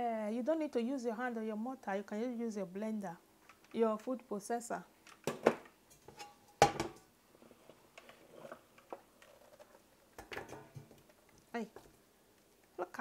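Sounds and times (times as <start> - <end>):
kitchenware clinking: 5.3 - 7.0, 10.2 - 10.9
kitchenware knocking: 5.3 - 7.0.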